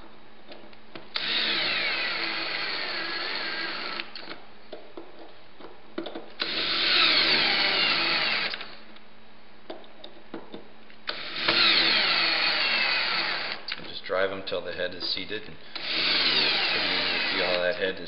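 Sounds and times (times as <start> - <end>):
power drill motor whine: 1.2 - 4.3, 6.4 - 8.8, 11.1 - 13.6, 15.8 - 17.6.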